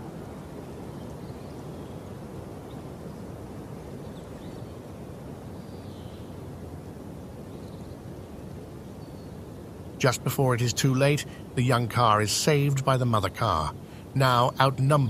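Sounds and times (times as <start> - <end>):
low outdoor rumble: 9.8 - 15.0.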